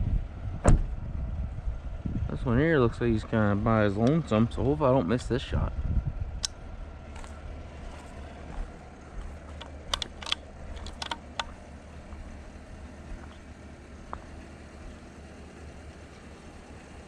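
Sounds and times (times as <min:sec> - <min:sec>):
low rumble: 0:00.0 - 0:17.0
footsteps on gravel: 0:07.1 - 0:14.4.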